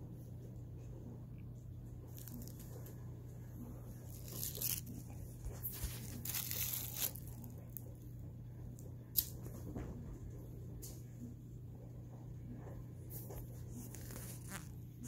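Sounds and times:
foil toy crinkling: 0:02.1 - 0:02.9, 0:04.0 - 0:07.8, 0:13.7 - 0:14.8.

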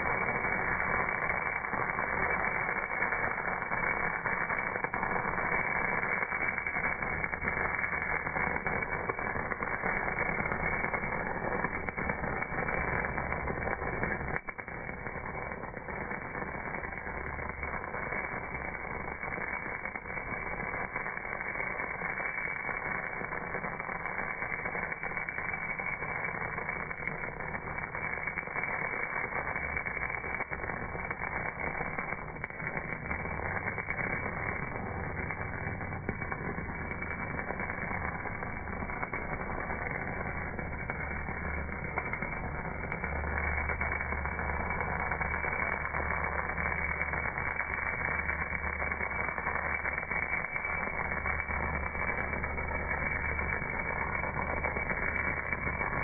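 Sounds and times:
welding arc crackling hiss: 0:00.0 - 0:56.0.

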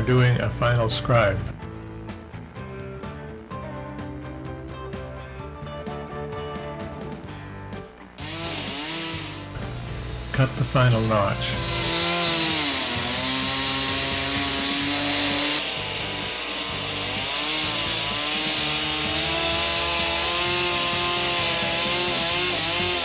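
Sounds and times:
chainsaw cutting log: 0:08.1 - 0:23.0.

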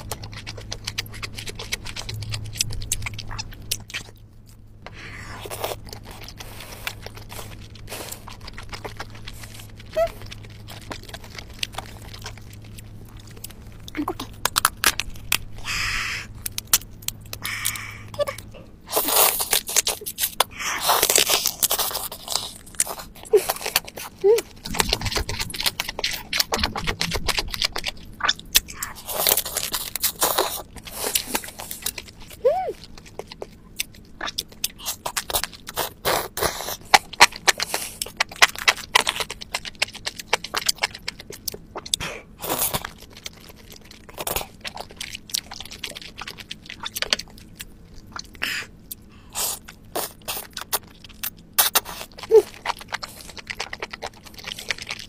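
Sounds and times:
crunching and chewing: 0:00.0 - 0:55.0
crab shell cracking: 0:05.8 - 0:18.0, 0:19.0 - 0:48.4.

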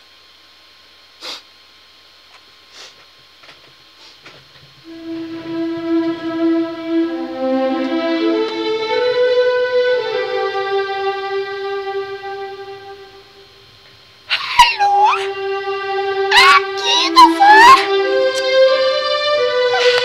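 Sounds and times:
slow melody of held notes: 0:04.8 - 0:13.8, 0:14.6 - 0:20.0.

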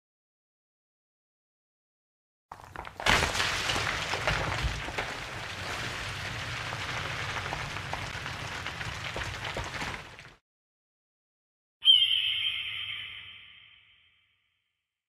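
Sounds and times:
falling grit and debris: 0:02.5 - 0:10.4.

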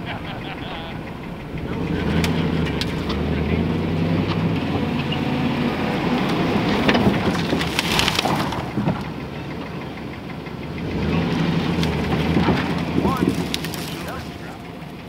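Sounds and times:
pickup engine running: 0:00.0 - 0:15.0
boards clattering and scraping: 0:06.0 - 0:09.1, 0:11.7 - 0:14.8.

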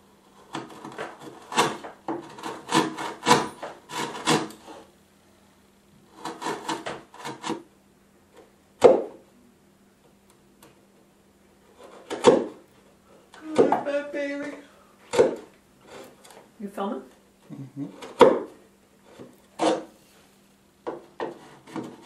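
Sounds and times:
hand tool scraping wood: 0:00.2 - 0:04.9, 0:06.1 - 0:07.6, 0:11.6 - 0:16.4, 0:17.8 - 0:20.3, 0:20.9 - 0:22.0.

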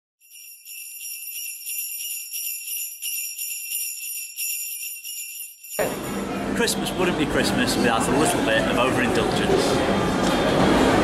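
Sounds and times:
jingle bells shaken: 0:00.2 - 0:06.2.

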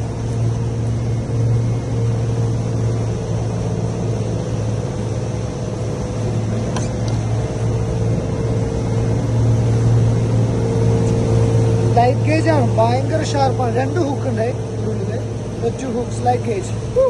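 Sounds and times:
outboard motor droning: 0:00.0 - 0:17.0
wind: 0:00.0 - 0:17.0.

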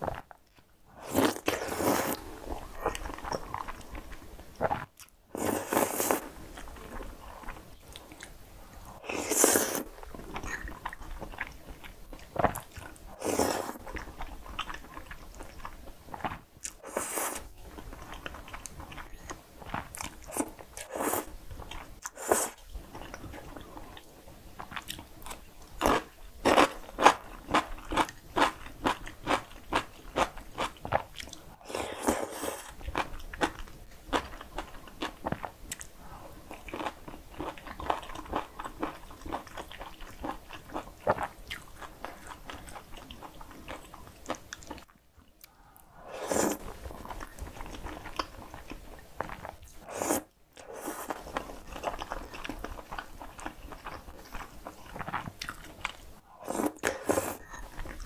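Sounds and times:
noodle slurps: 0:01.0 - 0:02.3, 0:05.4 - 0:06.3, 0:09.1 - 0:09.9, 0:13.1 - 0:13.9, 0:16.8 - 0:17.5, 0:46.0 - 0:46.8, 0:49.8 - 0:51.4, 0:56.4 - 0:57.6
wet chewing and smacking: 0:51.3 - 0:56.2.

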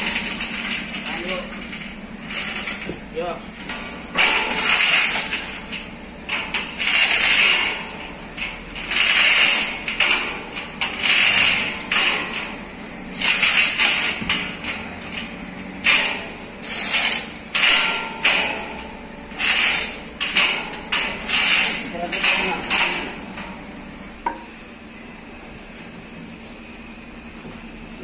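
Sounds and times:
hoist chain rattling: 0:04.2 - 0:23.3.

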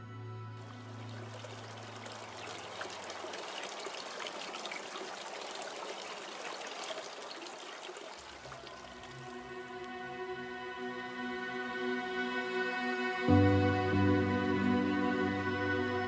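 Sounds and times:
water trickling from pipe: 0:00.6 - 0:10.0.

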